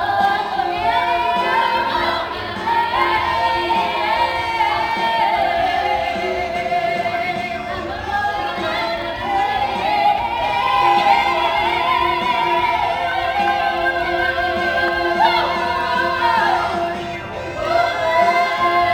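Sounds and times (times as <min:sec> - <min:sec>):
musical accompaniment: 0:00.0 - 0:18.9
women singing together: 0:00.0 - 0:18.9.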